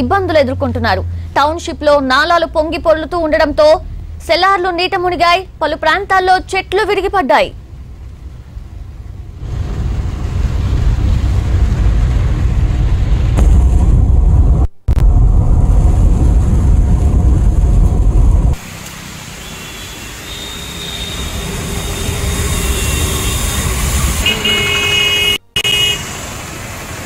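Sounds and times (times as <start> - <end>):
cars driving through floodwater: 7.6 - 13.0, 18.6 - 27.0
rain hissing: 7.8 - 13.4, 15.6 - 27.0.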